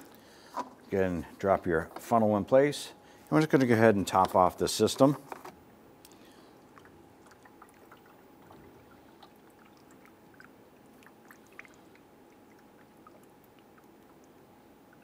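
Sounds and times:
steady low hum: 0:00.0 - 0:15.0
liquid pouring through a funnel: 0:06.6 - 0:15.0.

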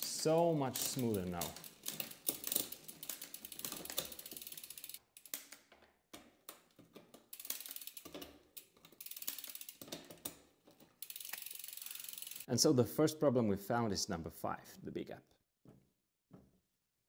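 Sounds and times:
bicycle chain clicking: 0:00.0 - 0:05.7, 0:06.5 - 0:12.5.

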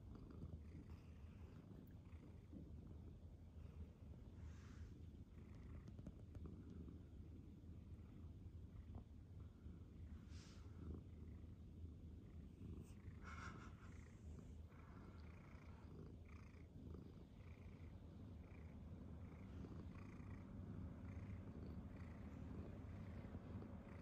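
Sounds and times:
cat purring: 0:00.0 - 0:24.0
soft breathy sounds: 0:03.4 - 0:07.2, 0:08.9 - 0:11.3.

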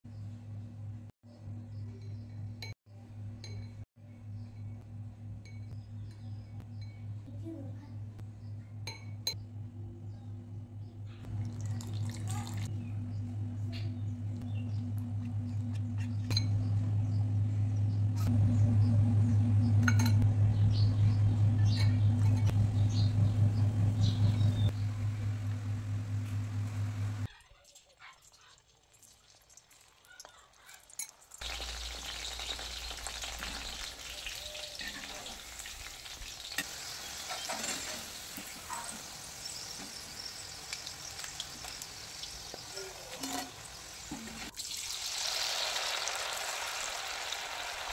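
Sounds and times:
steady low hum: 0:12.7 - 0:27.3
deep-frying sizzle in oil: 0:27.7 - 0:47.9.

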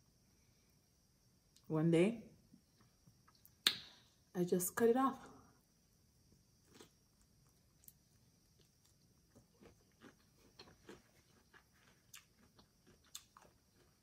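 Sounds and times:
faint chewing: 0:06.6 - 0:14.0.

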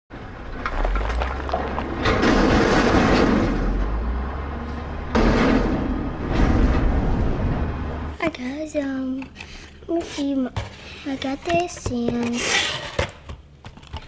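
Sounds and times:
truck engine rumble: 0:00.2 - 0:08.2
sudden surge of noise: 0:00.7 - 0:08.2.

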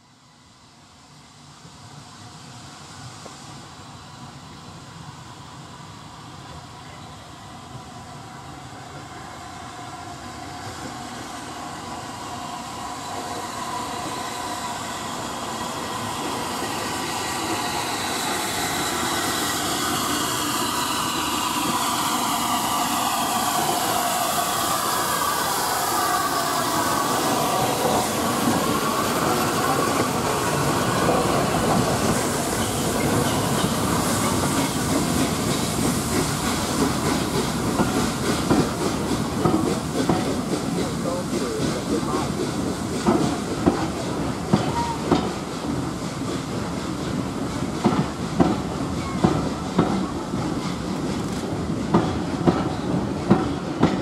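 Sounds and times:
steam locomotive passing: 0:00.0 - 0:54.0
train wheels clicking over rail joints: 0:26.9 - 0:54.0.

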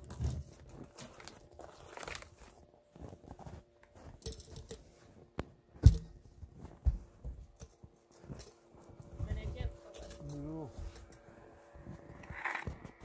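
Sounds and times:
metal hooks and chain clinking: 0:04.2 - 0:04.8, 0:08.3 - 0:08.6.

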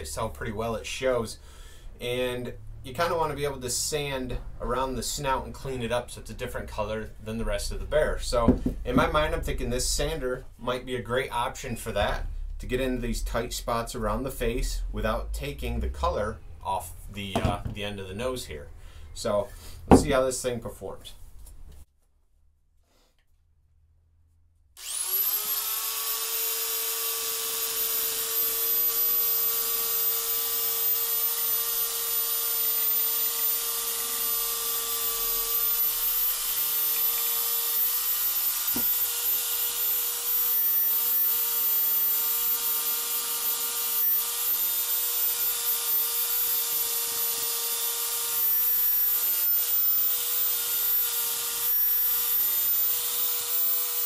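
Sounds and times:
sander motor humming and whining: 0:24.8 - 0:54.0.

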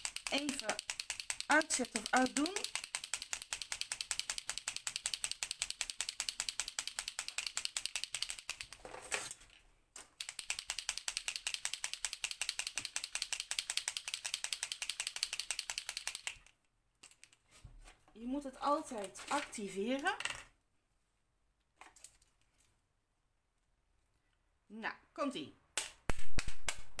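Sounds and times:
paint pen ball clicking: 0:00.0 - 0:08.8, 0:10.2 - 0:17.4.

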